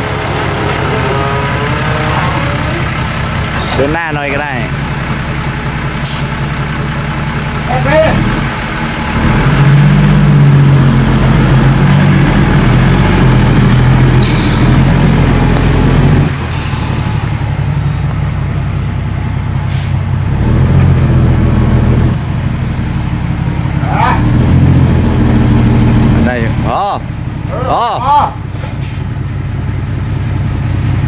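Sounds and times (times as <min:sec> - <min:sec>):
dump truck diesel engine revving: 0:00.0 - 0:31.0
brief air hiss: 0:06.0 - 0:06.3.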